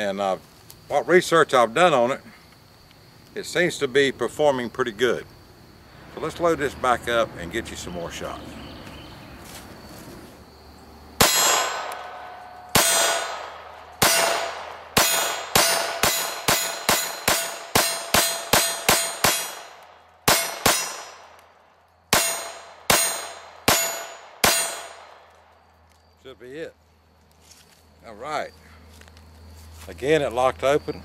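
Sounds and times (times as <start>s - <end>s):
metallic ring of steel targets: 11.2s - 19.7s, 20.3s - 21.2s, 22.1s - 25.0s
pistol shots: 11.2s - 21.4s, 22.1s - 25.3s.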